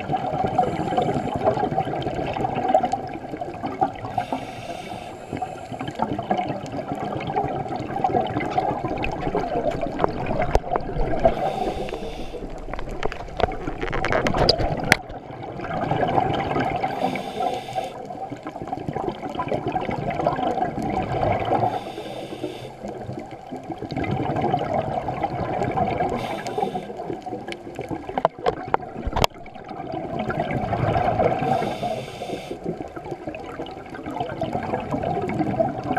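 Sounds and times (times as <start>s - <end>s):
bubbly gurgling exhales: 0.0s - 22.1s, 22.8s - 35.9s
diver inhaling through regulator: 0.6s - 1.6s, 4.1s - 6.0s, 11.2s - 12.6s, 16.9s - 18.0s, 21.6s - 22.8s, 26.1s - 27.2s, 31.4s - 32.7s.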